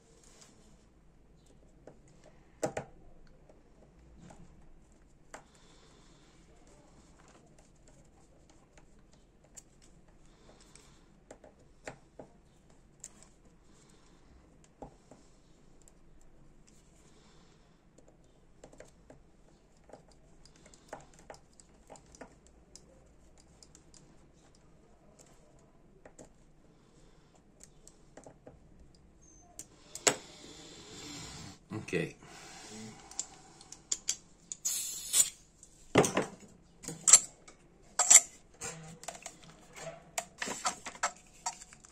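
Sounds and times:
screwdriver clicking and scraping metal: 36.8s - 41.9s.

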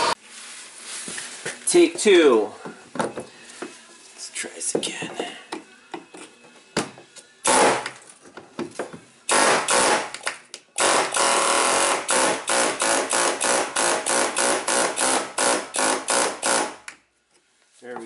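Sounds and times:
pneumatic air hammer bursts: 9.3s - 10.1s, 10.8s - 16.9s.

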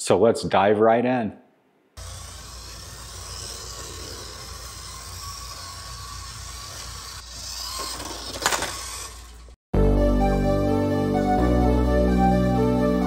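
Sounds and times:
toy car motor whining: 2.0s - 9.6s.

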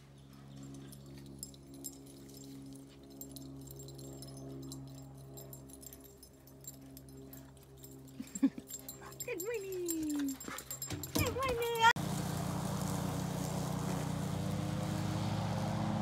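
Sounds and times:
high jingling: 0.1s - 12.0s.

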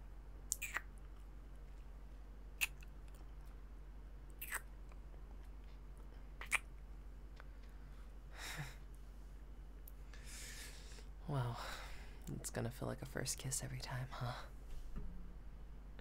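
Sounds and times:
kissing lip smacks: 0.5s - 0.9s, 2.6s - 2.9s, 4.4s - 4.7s, 6.4s - 6.7s
soft breath: 10.0s - 12.3s.

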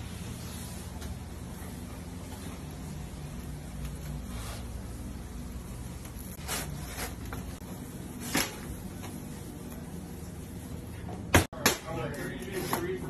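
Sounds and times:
kitchen hum: 0.0s - 13.0s.

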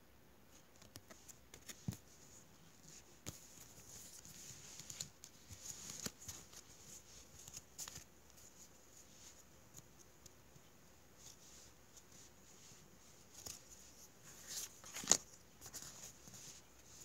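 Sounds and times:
trading cards rustling and tapping: 0.8s - 8.7s.

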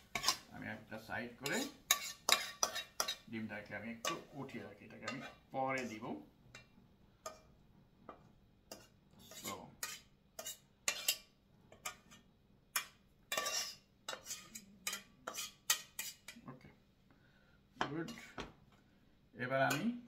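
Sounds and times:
utensil scraping a frying pan: 0.0s - 0.5s, 1.3s - 3.3s, 3.9s - 7.5s, 8.1s - 16.4s, 18.0s - 18.4s.

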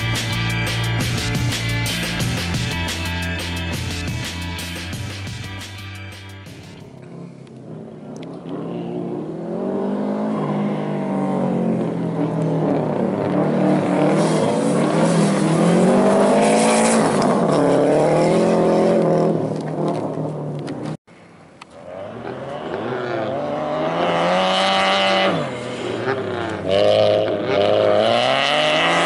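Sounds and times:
car engine revving hard: 8.5s - 19.5s, 21.9s - 29.0s.

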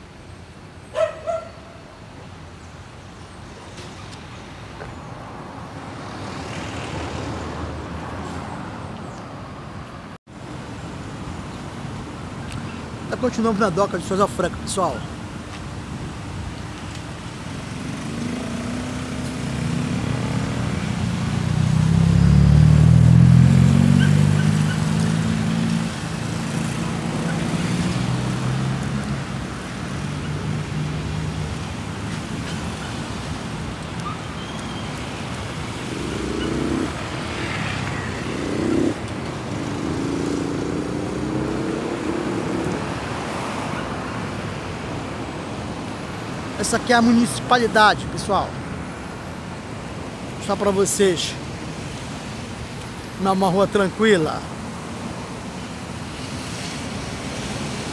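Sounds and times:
cars driving past: 3.6s - 12.1s, 16.8s - 57.9s
engine passing close: 17.6s - 29.3s, 34.8s - 43.7s.

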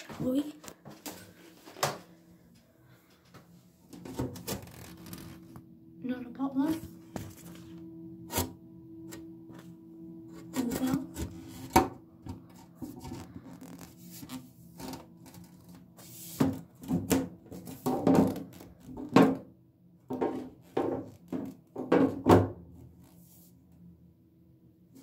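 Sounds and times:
steady low hum: 0.0s - 16.8s.

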